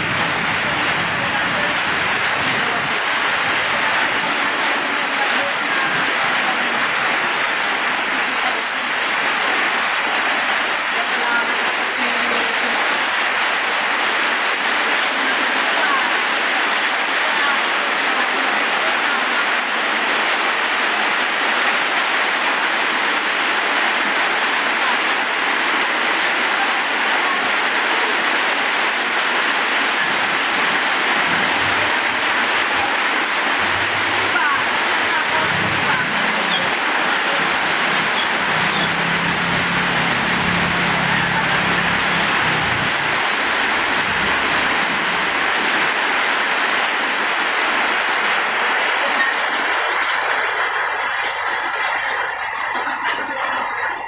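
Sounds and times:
heavy rain on standing water: 0:00.0 - 0:54.0.

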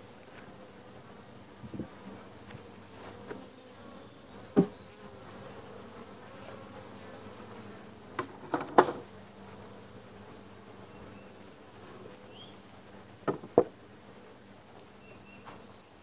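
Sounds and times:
bees buzzing: 0:00.0 - 0:16.0
knocks on wooden hive: 0:04.5 - 0:04.8, 0:08.2 - 0:09.0, 0:13.2 - 0:13.8.

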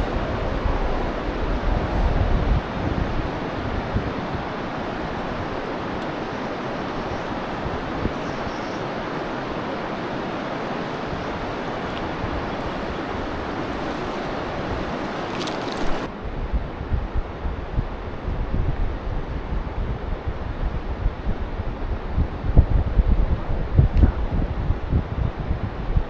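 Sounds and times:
wind buffeting microphone: 0:00.0 - 0:26.0
river water flowing over stones: 0:08.8 - 0:16.1.

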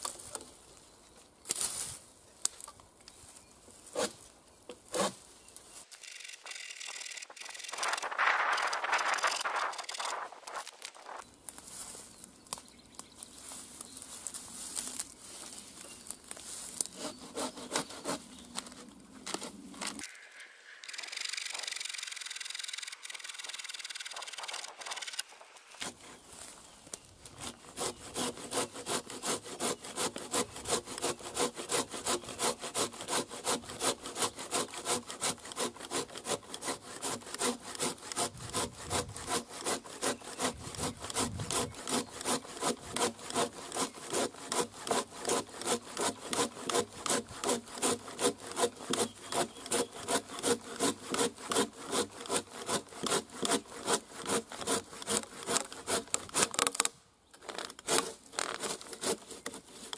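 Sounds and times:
hand saw cutting branch: 0:03.8 - 0:05.2, 0:16.5 - 0:20.2, 0:20.8 - 0:26.5, 0:27.2 - 0:59.9.

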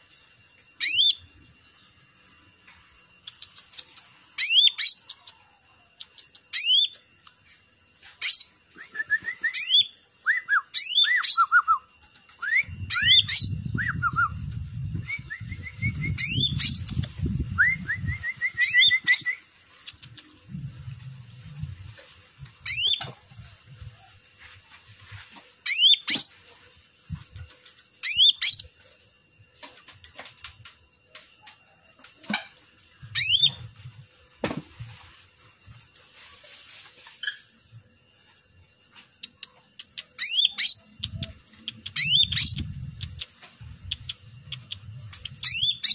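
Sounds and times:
bird singing whistled sweeps: 0:00.8 - 0:01.8, 0:08.2 - 0:19.4, 0:28.0 - 0:28.8, 0:33.1 - 0:33.7, 0:40.2 - 0:41.3, 0:41.9 - 0:42.8, 0:45.3 - 0:45.9.

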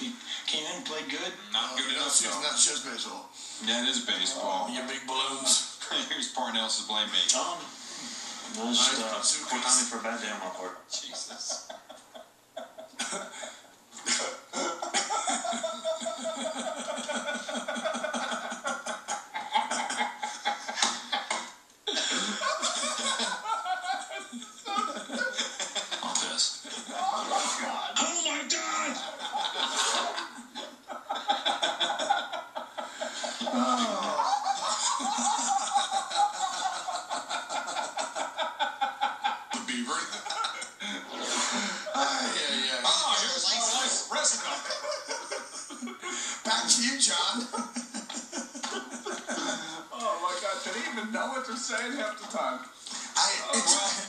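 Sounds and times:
men laughing hard: 0:11.0 - 0:28.0, 0:28.6 - 0:51.2
men coughing and wheezing: 0:12.7 - 0:28.0, 0:28.7 - 0:43.4, 0:47.5 - 0:50.0.

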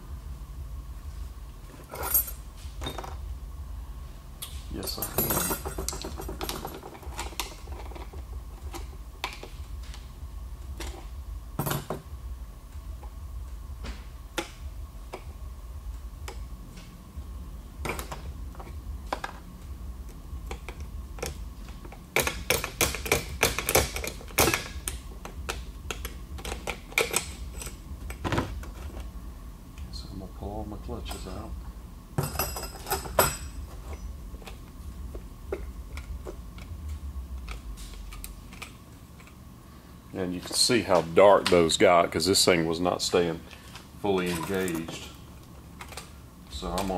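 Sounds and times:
metal parts clicking and clinking: 0:01.8 - 0:03.2, 0:04.8 - 0:08.9, 0:20.5 - 0:28.9.

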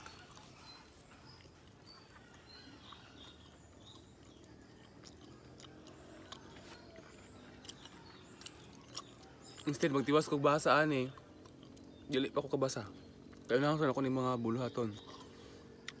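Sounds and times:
faint chewing: 0:00.0 - 0:16.0.

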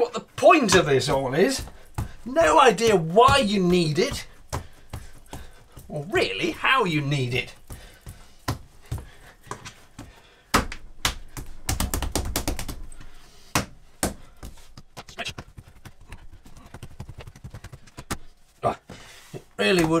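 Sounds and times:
dough thumping and slapping on counter: 0:10.5 - 0:12.9.

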